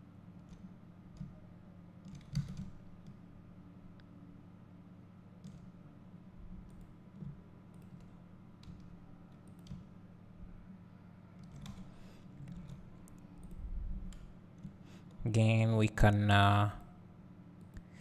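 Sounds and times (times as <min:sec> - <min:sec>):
low steady hum: 0:00.0 - 0:18.0
keyboard and mouse clicks: 0:02.0 - 0:03.2, 0:06.6 - 0:09.9, 0:11.4 - 0:14.8.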